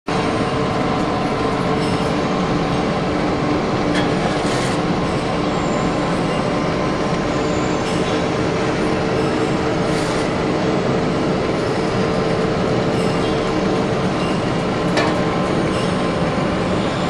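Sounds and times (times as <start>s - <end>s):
pellet mill droning: 0.1s - 17.0s
machine clattering: 13.8s - 16.8s.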